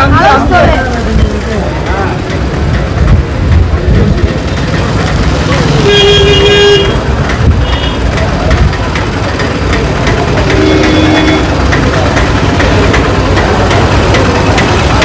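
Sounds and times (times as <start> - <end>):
background chatter: 0.0 - 15.0
vehicle engines running: 0.0 - 15.0
vehicle horn: 5.8 - 8.0, 10.4 - 11.6.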